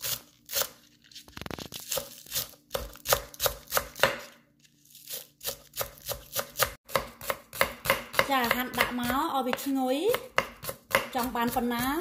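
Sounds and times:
knife chopping on wooden board: 1.9s - 4.4s, 5.1s - 12.0s.

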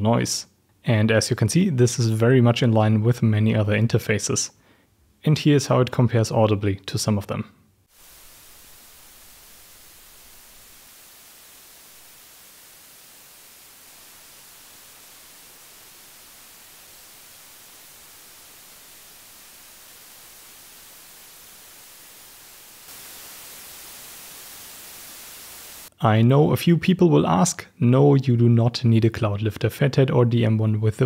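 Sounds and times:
microphone preamp hiss: 0.0s - 31.0s.

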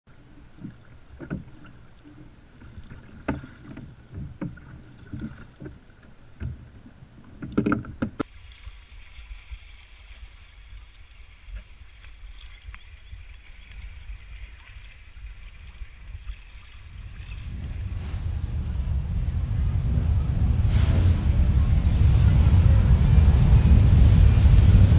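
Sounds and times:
faint lapping water: 0.0s - 24.3s
water slapping hull: 0.1s - 24.9s
wind rumble on microphone: 9.3s - 24.9s.

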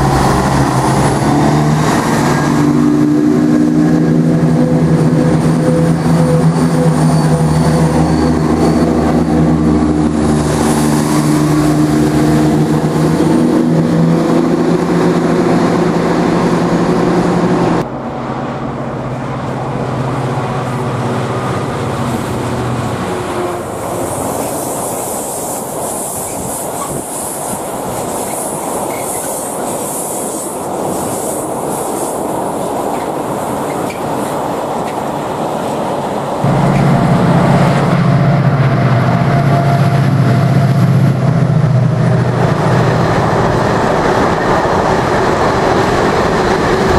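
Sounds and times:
diesel train engine droning: 0.0s - 46.9s.

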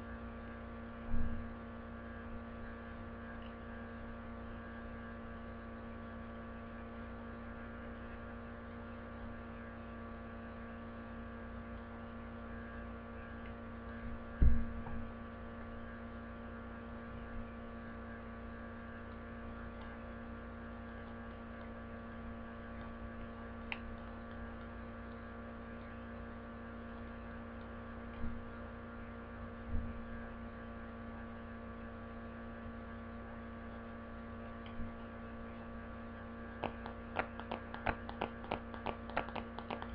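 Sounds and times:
electrical mains hum: 0.0s - 39.9s.

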